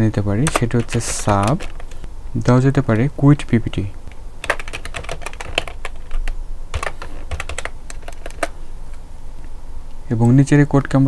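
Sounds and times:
keyboard key clicks: 0.4 - 2.0, 4.4 - 8.6.

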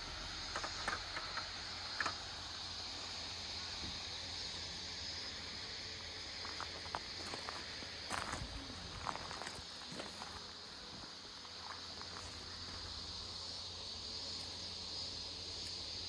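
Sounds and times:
insects chirring: 0.0 - 16.0
low outdoor hiss: 0.0 - 16.0.

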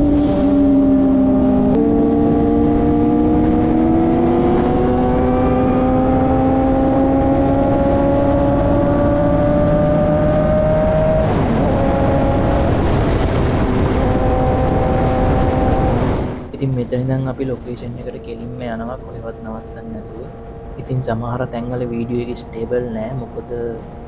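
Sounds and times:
motorcycle engine: 0.0 - 16.6
wind rush: 0.0 - 21.0.

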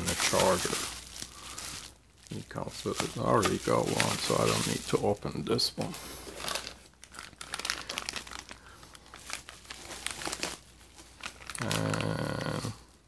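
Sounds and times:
hands rummaging in cardboard box: 0.0 - 5.2
plastic packaging crinkling: 0.0 - 13.0.

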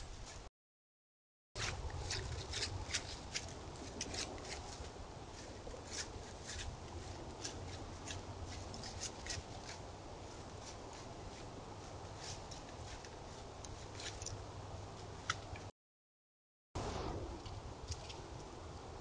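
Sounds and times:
footsteps in dry leaves: 1.6 - 15.2.

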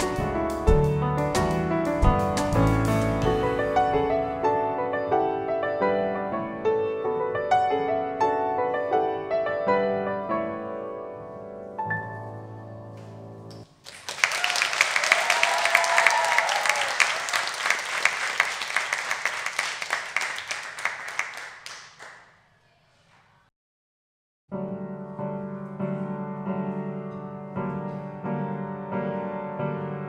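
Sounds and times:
grand piano tune: 0.0 - 13.7, 24.5 - 30.0
audience applause: 13.8 - 22.2.

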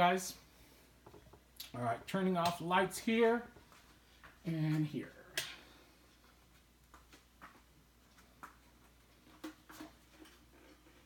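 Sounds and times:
faint clicks and knocks: 1.0 - 1.5.

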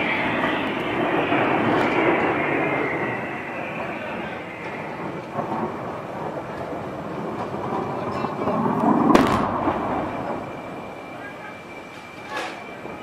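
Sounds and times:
steady rushing rumble: 0.0 - 13.0
sharp crack of a gunshot: 9.0 - 10.2.

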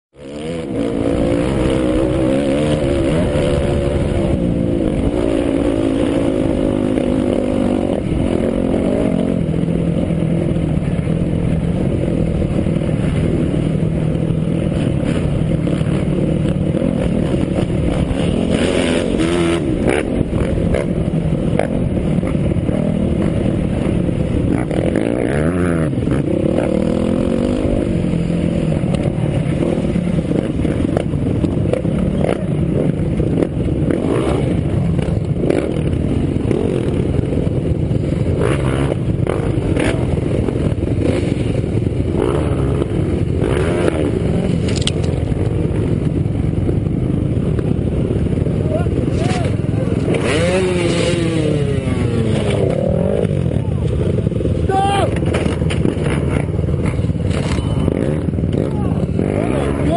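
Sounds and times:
motorcycle engine revving: 0.1 - 59.9.

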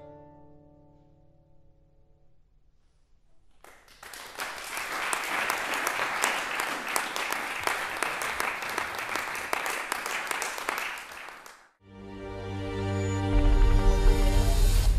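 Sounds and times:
audience applause: 3.6 - 11.8.

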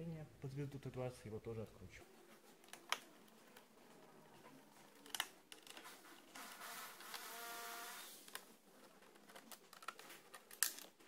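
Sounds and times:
screwdriver buzzing whir: 6.3 - 8.2.

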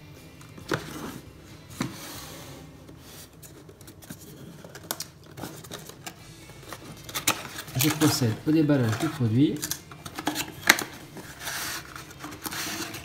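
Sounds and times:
cardboard sliding and rubbing: 0.7 - 4.7, 10.8 - 13.0.

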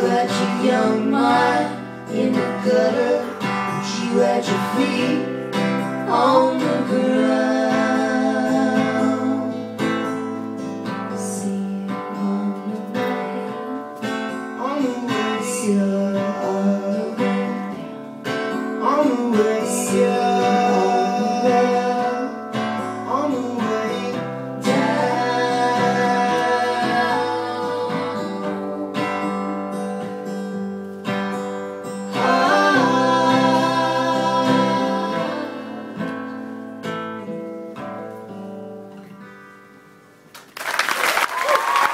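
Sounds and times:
person singing: 0.0 - 9.8, 11.1 - 17.9, 18.8 - 29.8, 32.1 - 36.1
live guitar music: 0.0 - 40.6.

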